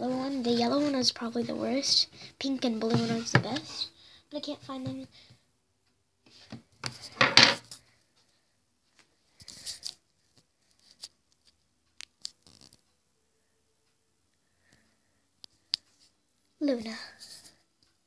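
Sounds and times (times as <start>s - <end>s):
rustling and handling noise: 0.0s - 5.1s, 6.3s - 13.0s, 15.4s - 18.0s.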